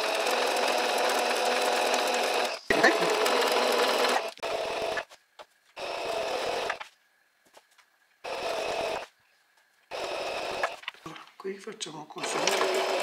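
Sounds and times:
electric sewing machine stitching: 0.0 - 5.1, 5.8 - 6.8, 8.2 - 9.0, 9.9 - 10.8, 12.2 - 13.0.

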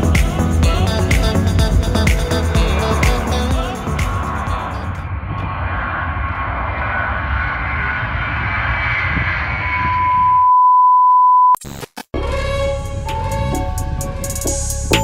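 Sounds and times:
music: 0.0 - 4.9, 12.2 - 15.0
jet engine roaring: 2.8 - 10.4.

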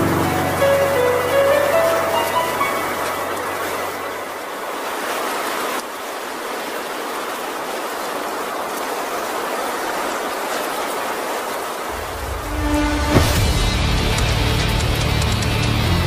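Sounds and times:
steady rushing noise: 11.0 - 16.0.

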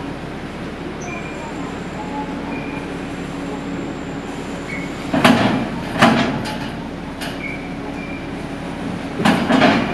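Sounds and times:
ship machinery hum: 0.0 - 9.9
wheels clanking over steel ramp: 5.1 - 8.2, 9.2 - 9.9.

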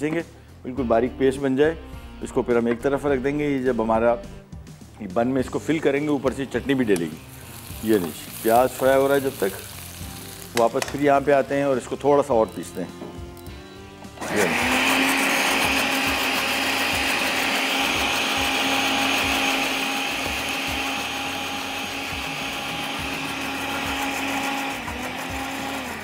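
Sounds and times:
electric blender whirring: 14.2 - 26.0.

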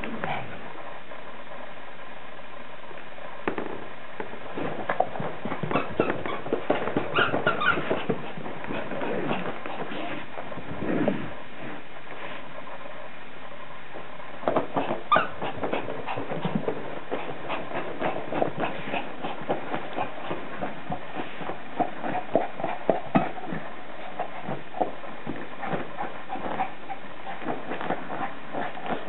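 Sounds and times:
dog vocal sounds: 4.6 - 11.3, 14.6 - 29.0.

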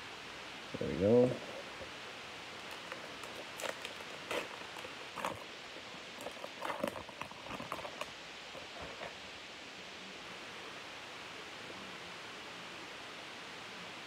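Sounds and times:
steady background hiss: 0.0 - 14.0
foil wrapper crackling: 2.5 - 9.2.

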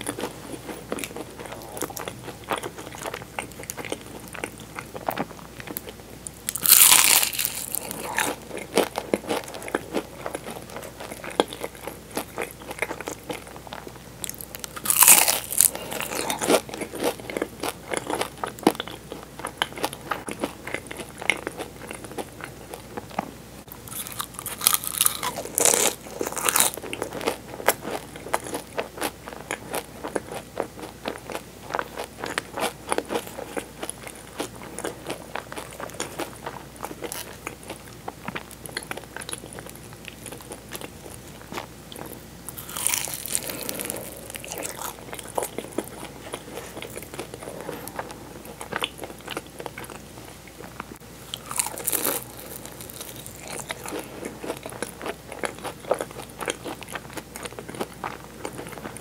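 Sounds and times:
pastry crust crunching: 0.0 - 19.0, 23.9 - 28.6, 31.7 - 50.0, 50.7 - 59.0
chewing clicks and crackles: 51.3 - 59.0.

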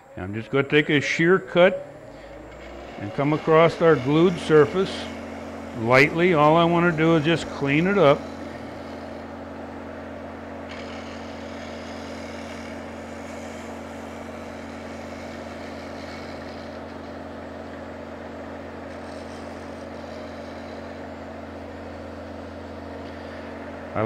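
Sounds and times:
wood lathe motor humming: 0.0 - 24.0
hiss of tool cutting wood: 2.8 - 9.3, 10.7 - 17.1, 18.9 - 21.1.

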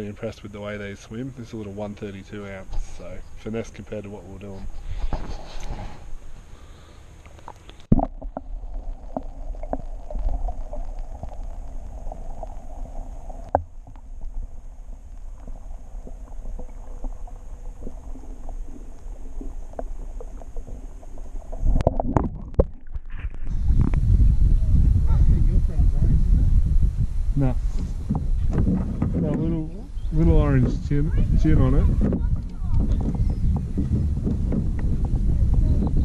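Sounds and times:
water splashing: 1.4 - 24.0
faint ticks: 7.2 - 7.9, 9.1 - 21.9
dull low underwater rumble: 7.4 - 36.0.

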